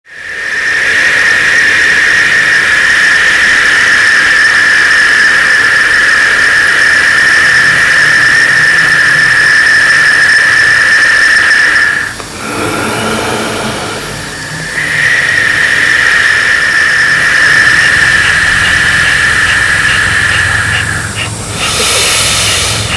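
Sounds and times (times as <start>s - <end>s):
high-pitched whine: 0.1s - 22.9s
low rough sound: 12.2s - 22.9s.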